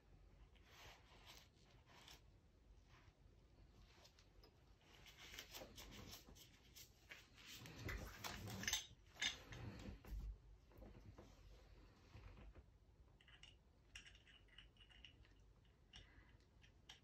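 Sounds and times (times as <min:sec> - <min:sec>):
metal parts rubbing and rustling: 0:04.9 - 0:09.9
small clicks and knocks: 0:12.4 - 0:17.0.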